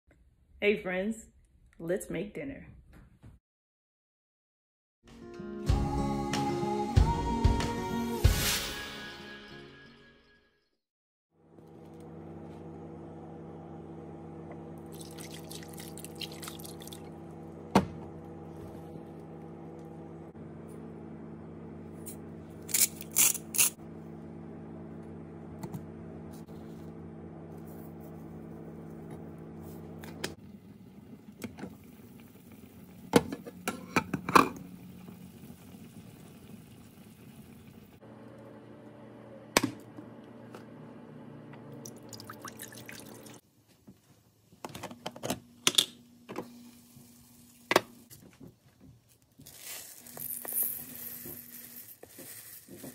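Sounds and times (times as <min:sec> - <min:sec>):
water poured into saucepan: 0:14.9 - 0:17.1, 0:41.9 - 0:43.4.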